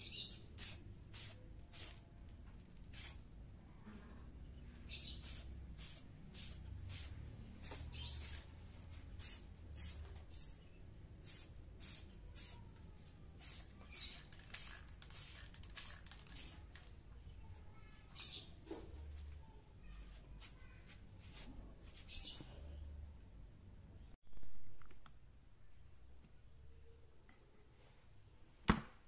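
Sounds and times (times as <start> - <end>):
spray can hissing bursts: 0.6 - 2.0, 2.8 - 3.2, 4.9 - 8.5, 9.2 - 10.5, 11.2 - 12.6, 13.4 - 16.8.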